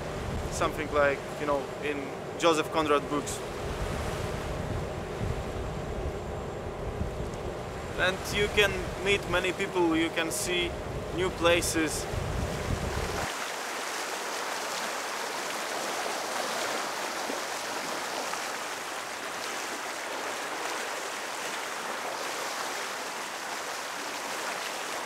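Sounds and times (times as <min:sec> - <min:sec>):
bow wave rushing water: 0:00.0 - 0:25.0.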